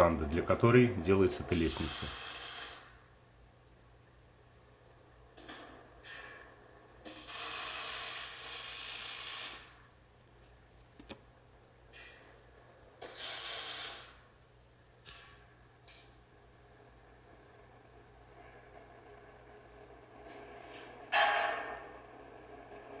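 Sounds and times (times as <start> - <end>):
arc welding hiss and crackle: 1.5 - 3.0, 7.0 - 9.9, 13.0 - 14.3, 15.0 - 16.0.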